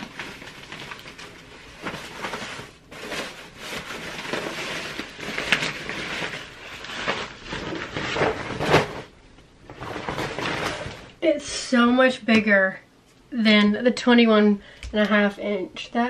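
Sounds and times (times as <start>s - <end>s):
plastic wrap crinkling: 0.0s - 11.2s.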